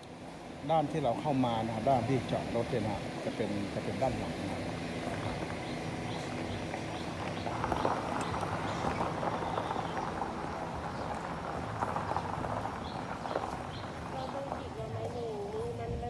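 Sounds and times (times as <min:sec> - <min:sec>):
footsteps on gravel: 0:04.1 - 0:16.0.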